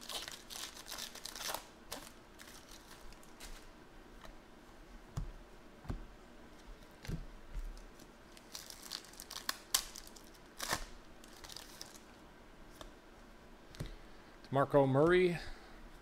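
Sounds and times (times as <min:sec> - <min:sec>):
foil wrappers crinkling and tearing: 0:00.0 - 0:03.7, 0:07.7 - 0:12.2.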